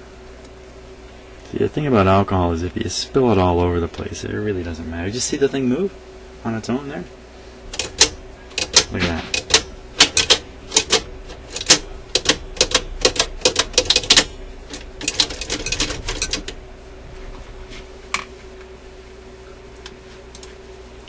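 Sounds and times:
metal mechanism clicking: 7.7s - 16.5s.

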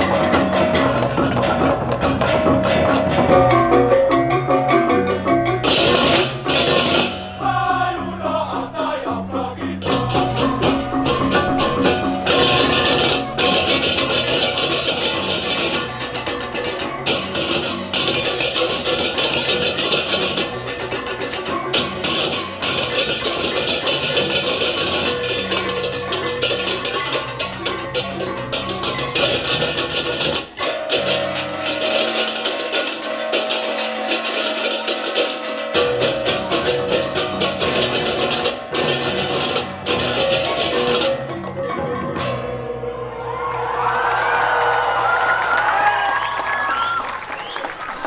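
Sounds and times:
drums: 0.0s - 7.9s, 9.8s - 48.0s
hand cymbals clashing: 9.8s - 41.2s
gongs ringing: 9.8s - 41.4s.

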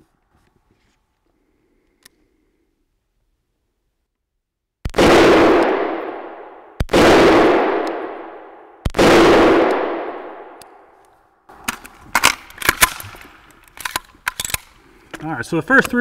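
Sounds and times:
rifle shots echoing indoors: 4.9s - 11.0s.

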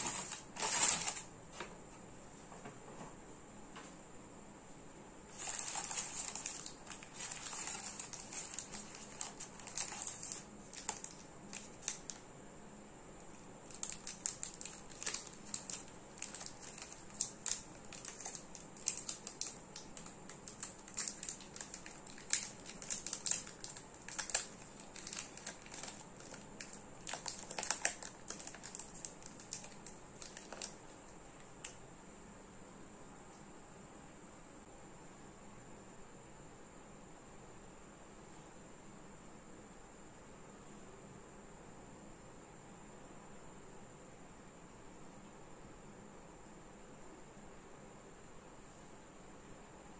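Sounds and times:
plastic wrapper crinkling: 0.0s - 1.3s, 5.3s - 12.2s, 13.3s - 31.7s.

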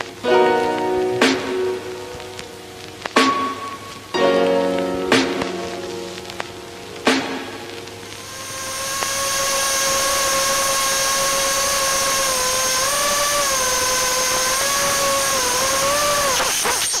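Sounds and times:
drone motors whining: 8.2s - 17.0s.

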